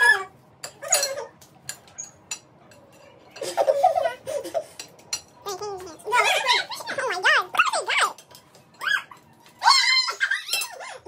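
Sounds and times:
candy canes clicking on plates: 0.6s - 3.6s, 4.6s - 11.0s
giggling laughter: 3.4s - 4.8s.

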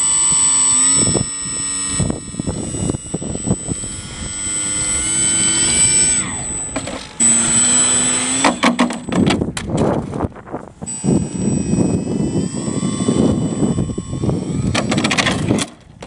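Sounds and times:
electric motor and propeller whining: 0.0s - 16.0s
model plane crashing on pavement: 7.8s - 10.3s, 14.6s - 16.0s.

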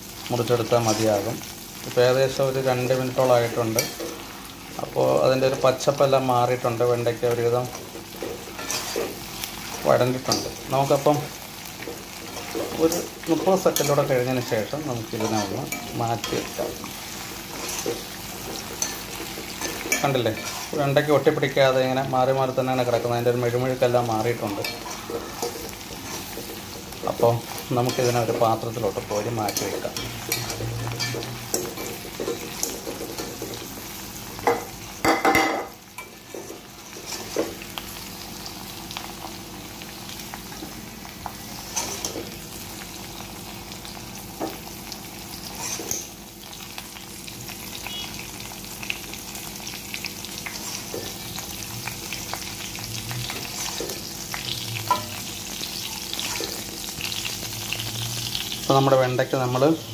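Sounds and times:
okra sizzling in hot oil: 0.0s - 59.9s
strainer scraping against pan: 8.2s - 9.2s, 17.4s - 21.0s.

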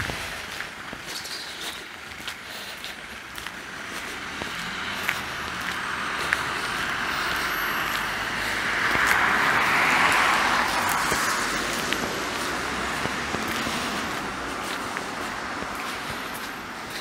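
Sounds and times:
steady traffic noise: 0.0s - 17.0s
car driving past: 3.7s - 16.4s.

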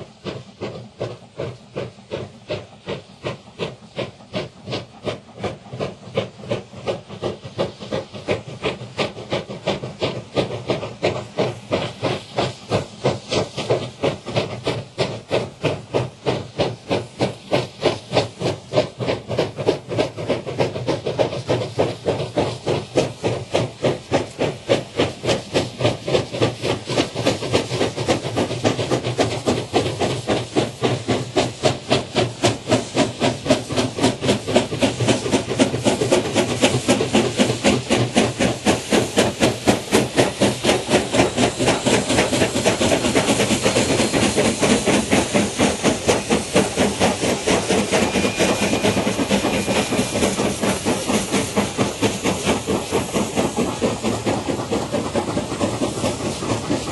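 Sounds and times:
steam hissing: 0.0s - 56.9s
steam locomotive chuffing: 0.0s - 56.9s.

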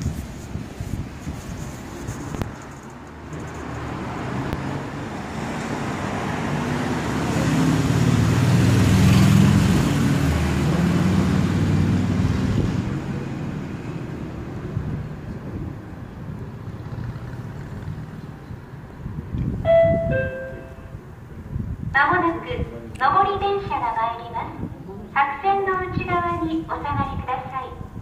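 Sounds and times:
vehicle passing by: 3.2s - 15.7s, 16.5s - 19.2s.

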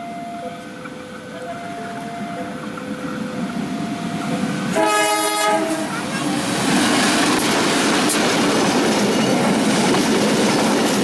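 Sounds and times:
two-tone level-crossing alarm: 0.0s - 5.1s
locomotive rumble: 0.0s - 11.0s.

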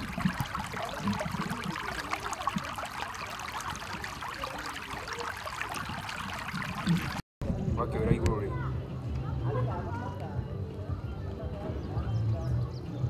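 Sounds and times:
water rushing over stones: 0.0s - 7.2s.

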